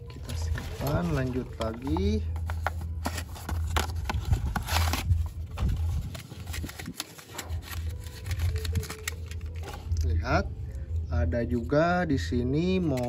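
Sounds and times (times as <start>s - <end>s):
cardboard and plastic packaging rustling: 0.0s - 10.2s.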